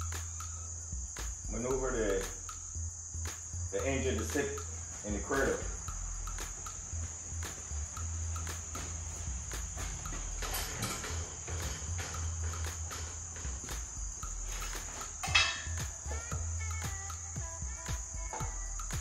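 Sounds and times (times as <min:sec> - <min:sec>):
sharp metallic clank: 0:14.6 - 0:16.0.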